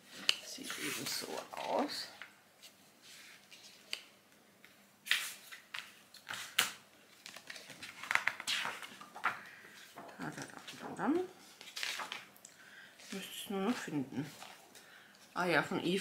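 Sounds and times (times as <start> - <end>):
paper rustling: 5.1 - 12.3, 13.1 - 14.7.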